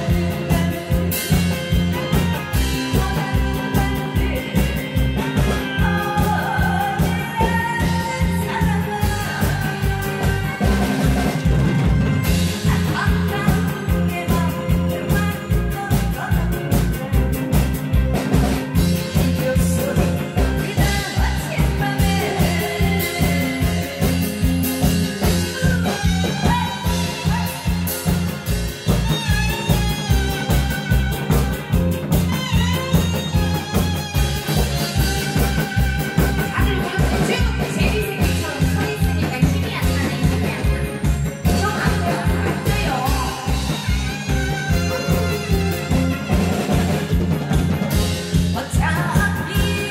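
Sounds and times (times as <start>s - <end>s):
woman singing into a microphone: 0.0s - 11.5s, 12.2s - 17.1s, 18.8s - 28.5s, 35.2s - 45.0s, 48.0s - 49.9s
loud amplified music with beat: 0.0s - 49.9s.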